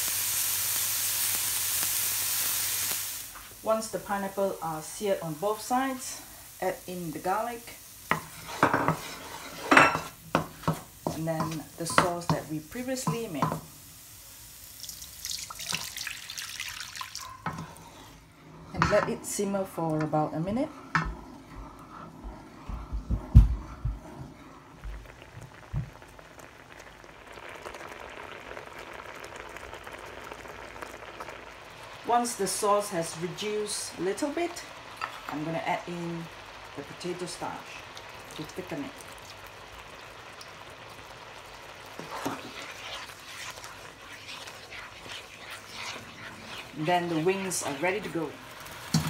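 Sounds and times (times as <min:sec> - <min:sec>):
sauce bubbling: 0:00.0 - 0:49.0
spatula stirring: 0:08.1 - 0:13.6, 0:17.2 - 0:18.2, 0:39.9 - 0:49.0.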